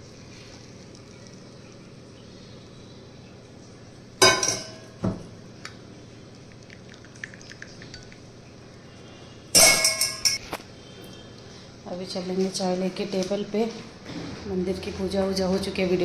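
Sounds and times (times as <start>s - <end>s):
steel clinking against glass: 9.6s - 10.4s.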